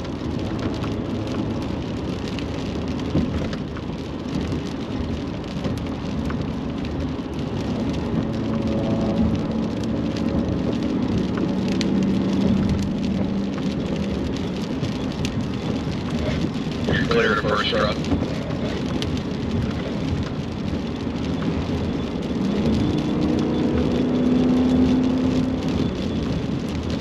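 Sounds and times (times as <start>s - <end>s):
tyres hissing on wet pavement: 13.8s - 21.8s
low engine drone: 16.9s - 18.8s.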